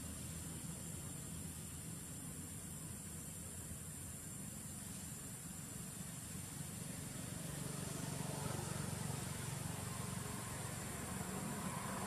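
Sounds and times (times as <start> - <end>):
faint outdoor background noise: 0.0 - 12.0
distant engine humming: 5.6 - 12.0.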